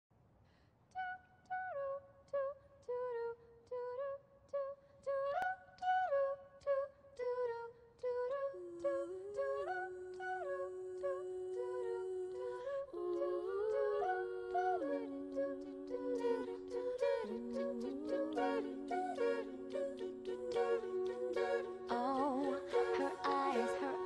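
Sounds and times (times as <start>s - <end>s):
wordless vocal notes: 8.1s - 24.0s.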